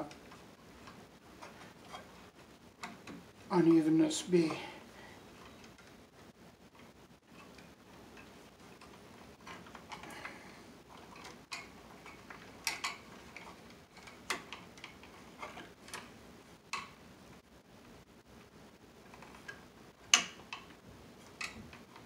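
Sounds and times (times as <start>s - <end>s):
wires and tools clicking: 0.0s - 3.8s, 6.7s - 17.0s, 19.0s - 22.0s.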